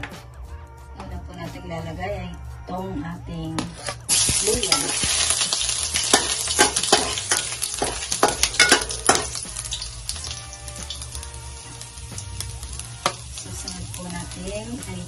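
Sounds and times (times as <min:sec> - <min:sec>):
metal spatula scraping pan: 0:03.6 - 0:11.0
ginger sizzling in hot oil: 0:03.7 - 0:15.0.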